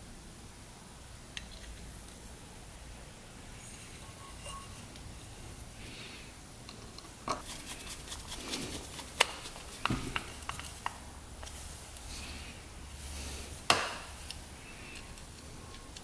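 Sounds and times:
small parts clicking and tapping: 9.1 - 12.1, 13.7 - 16.0.

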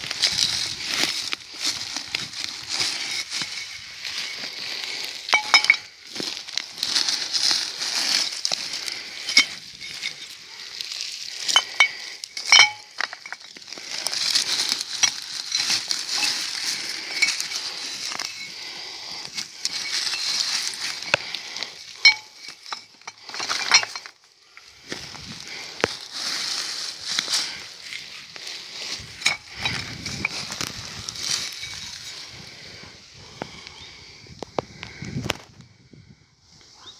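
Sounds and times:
hand rustling through moss and twigs: 0.0 - 35.6
small glass bottles clinking: 0.2 - 24.7, 29.0 - 32.0.

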